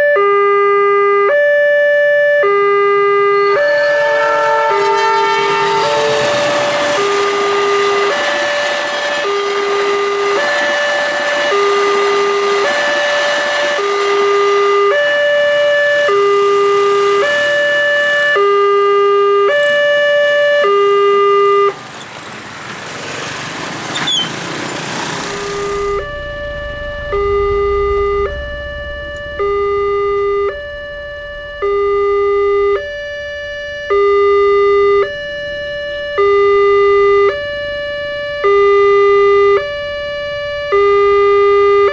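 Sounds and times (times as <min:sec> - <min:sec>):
two-tone crossing alarm: 0:00.0 - 0:22.2, 0:25.2 - 0:41.9
road noise: 0:00.0 - 0:41.9
passing train: 0:02.7 - 0:18.8, 0:21.7 - 0:31.8.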